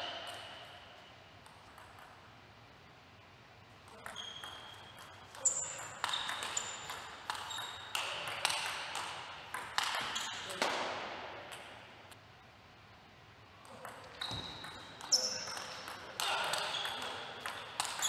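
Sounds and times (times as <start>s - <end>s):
table tennis ball hits: 3.9s - 11.9s, 13.6s - 18.0s.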